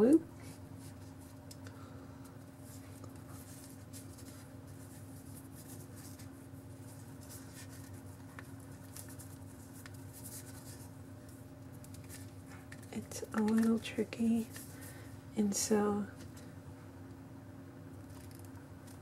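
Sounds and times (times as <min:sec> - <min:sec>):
cord rustling and scratching: 0:02.5 - 0:15.0, 0:18.0 - 0:19.0.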